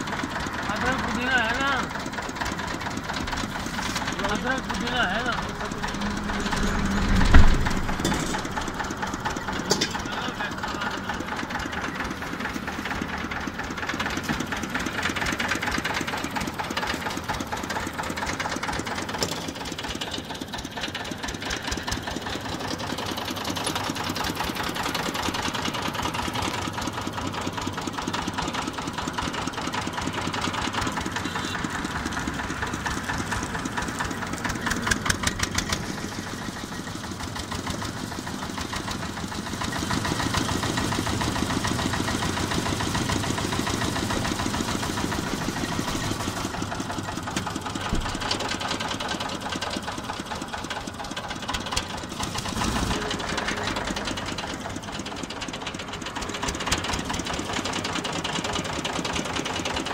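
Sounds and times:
small engine running: 0.0s - 59.9s
heavy thump: 7.0s - 8.7s.

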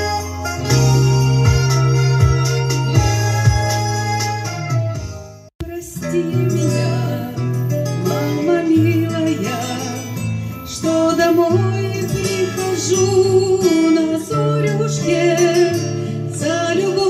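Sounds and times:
amplified backing music: 0.0s - 17.0s
woman singing into a microphone: 5.6s - 17.0s.

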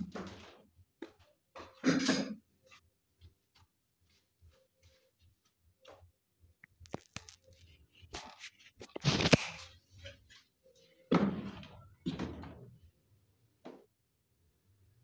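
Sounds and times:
cookware knocking and clattering: 1.6s - 2.4s.

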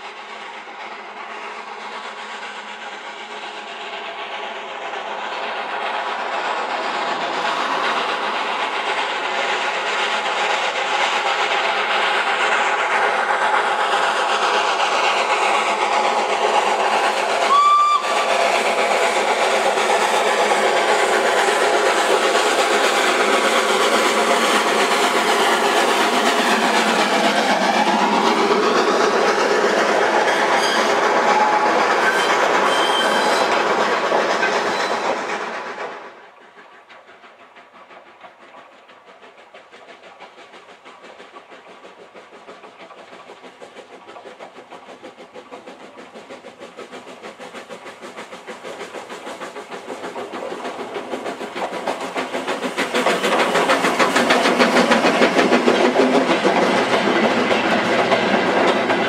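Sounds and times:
steam locomotive running: 0.0s - 59.0s
train coaches passing: 0.0s - 59.0s
steam whistle blast: 17.4s - 18.3s, 30.3s - 33.5s.

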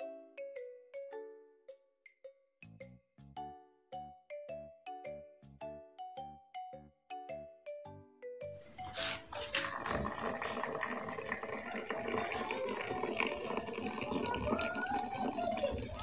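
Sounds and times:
coffee pouring into cup: 8.6s - 16.0s.

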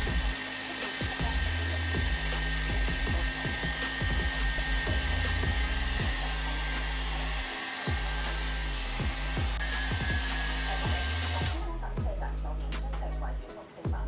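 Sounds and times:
hair dryer blowing: 0.0s - 11.8s
background music with bass beat: 0.0s - 14.0s.

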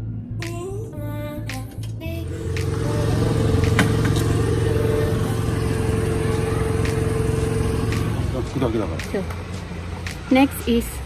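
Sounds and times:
background music: 0.0s - 11.0s
motor running: 2.0s - 10.0s.

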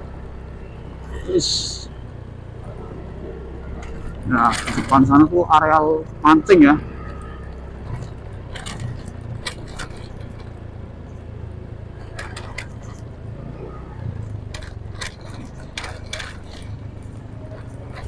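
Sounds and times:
motorcycle engine humming: 0.0s - 18.0s
metallic clinks and jingles: 3.3s - 5.3s, 6.8s - 11.3s, 12.0s - 18.0s.

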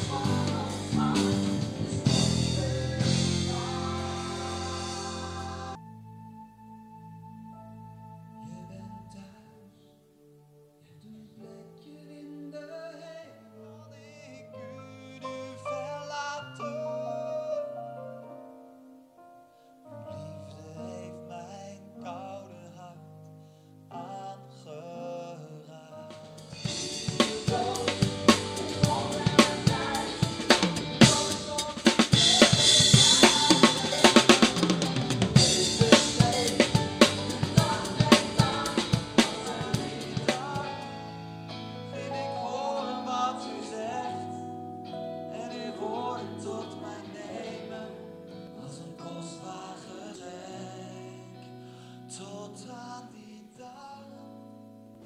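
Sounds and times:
drum kit with crashing cymbals: 0.0s - 5.8s, 26.2s - 41.1s
bass line: 0.0s - 9.1s, 26.2s - 43.2s
keyboard chords: 0.0s - 24.7s, 25.4s - 53.0s.

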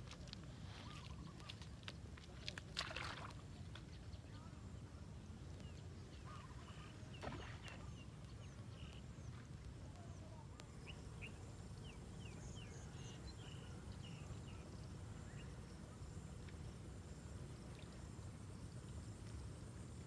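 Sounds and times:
small birds chirping: 3.7s - 15.6s.

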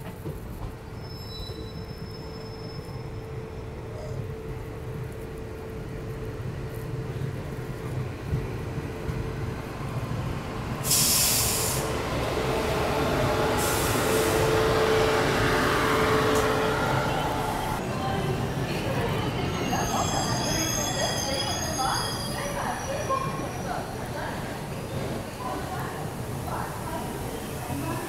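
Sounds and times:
train coach rumble: 0.0s - 28.0s
loud hissing burst: 10.8s - 12.0s, 13.5s - 14.6s.

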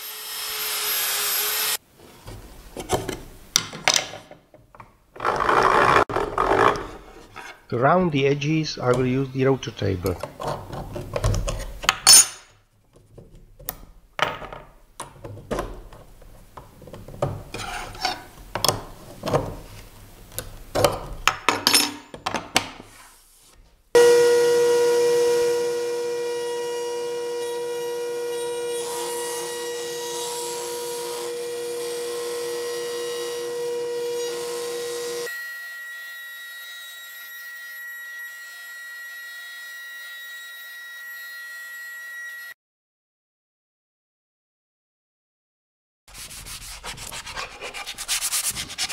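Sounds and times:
router whining: 0.0s - 1.8s, 24.0s - 42.5s.

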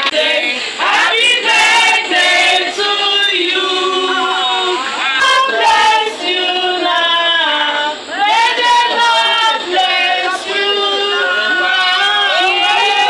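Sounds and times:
group of people singing: 0.0s - 13.0s.

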